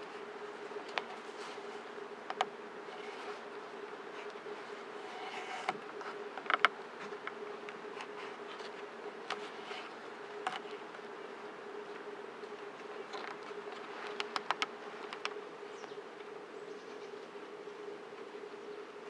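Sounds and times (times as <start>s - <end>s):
steady low hum: 0.0s - 19.0s
sharp creaks and clicks: 5.2s - 7.4s, 9.3s - 10.8s, 13.1s - 15.4s.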